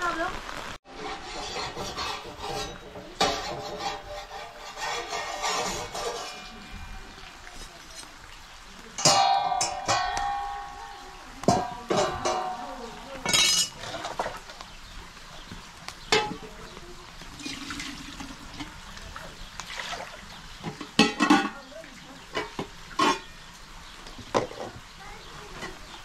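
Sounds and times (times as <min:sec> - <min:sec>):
voices: 0:01.2 - 0:26.0
dishes and cutlery clinking: 0:01.4 - 0:08.2, 0:09.0 - 0:14.5, 0:16.0 - 0:16.6, 0:20.6 - 0:21.7, 0:22.3 - 0:23.4.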